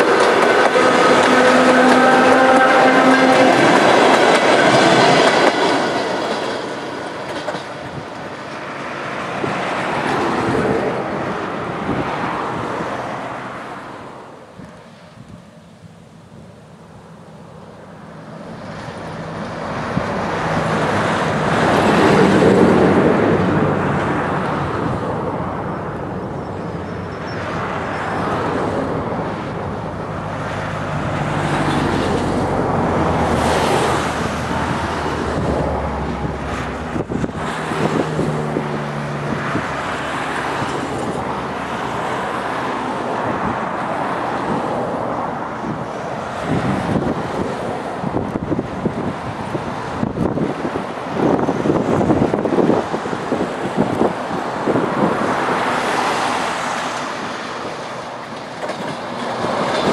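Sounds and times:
electric train rumbling: 0.0s - 59.9s
road traffic passing: 0.0s - 59.9s
wind buffeting the microphone: 28.4s - 41.4s, 43.2s - 59.9s.

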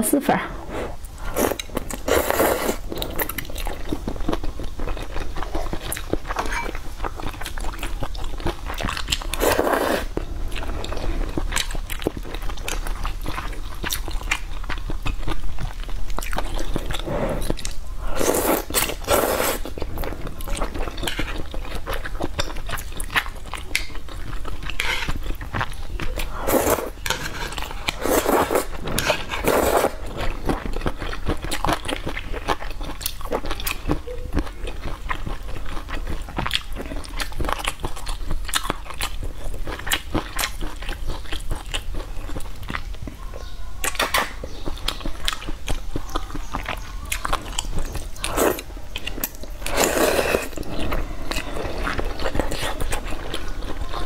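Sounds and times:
person slurping noodles: 0.5s - 3.3s, 9.4s - 11.3s, 16.7s - 20.7s, 26.2s - 30.3s, 48.2s - 48.7s, 49.6s - 53.0s
person chewing: 0.8s - 43.2s, 43.9s - 54.0s.

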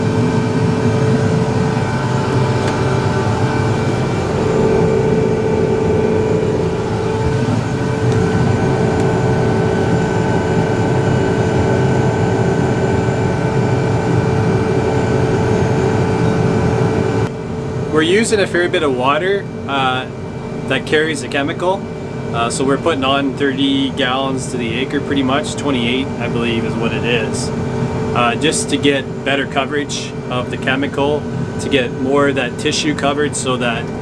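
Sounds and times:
crop sprayer engine hum: 0.0s - 17.3s
constant whine: 0.0s - 34.0s.

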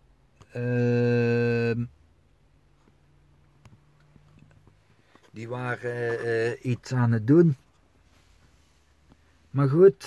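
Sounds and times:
man humming low note: 0.4s - 1.9s.

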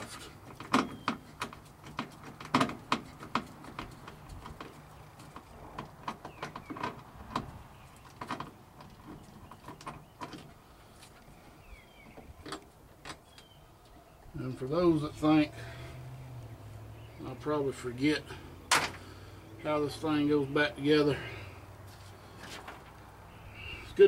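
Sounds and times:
tool clicks and rattles on metal: 0.0s - 9.0s.

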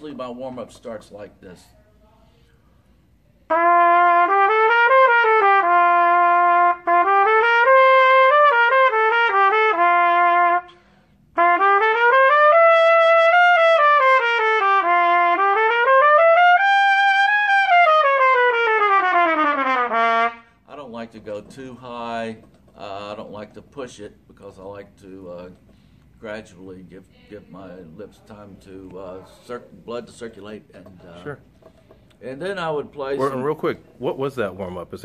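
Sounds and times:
trumpet playing scales: 3.5s - 22.2s.

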